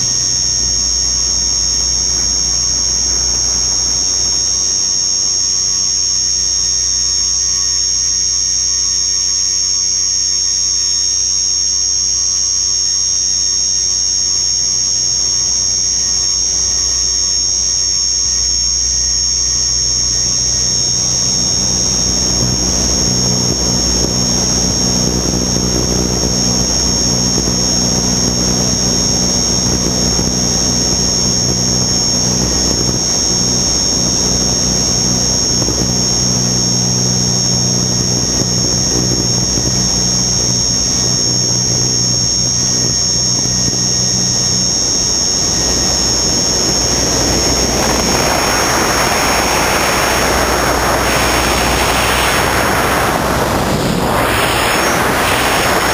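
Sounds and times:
high motor whine: 0:00.0 - 0:55.9
low propeller drone: 0:00.0 - 0:55.9
rushing air: 0:45.4 - 0:55.9.

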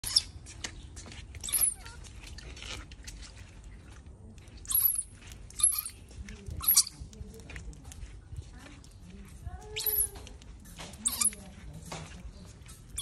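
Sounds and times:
baby monkey squealing: 0:00.0 - 0:00.3, 0:01.4 - 0:01.9, 0:04.7 - 0:06.0, 0:06.6 - 0:07.0, 0:09.8 - 0:10.1, 0:11.0 - 0:11.4.

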